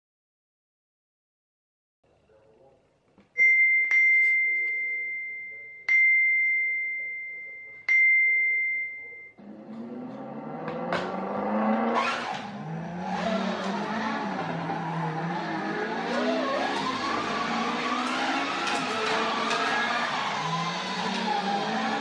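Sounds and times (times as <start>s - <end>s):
slot car motor whirring: 9.4s - 22.0s.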